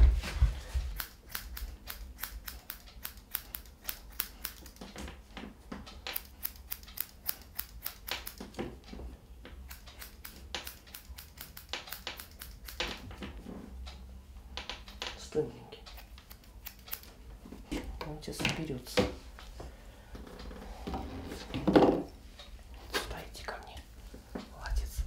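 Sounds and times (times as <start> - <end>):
scissors snipping wiry dog fur: 0.9 - 4.8, 6.1 - 8.6, 9.6 - 13.0, 15.9 - 17.1.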